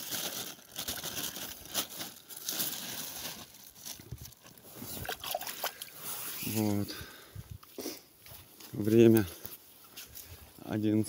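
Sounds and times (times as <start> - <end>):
plastic bag crinkling: 0.0 - 5.8.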